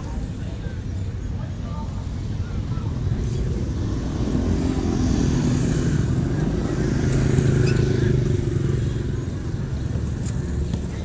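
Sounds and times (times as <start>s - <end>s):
motorbike engine passing: 3.7s - 10.6s.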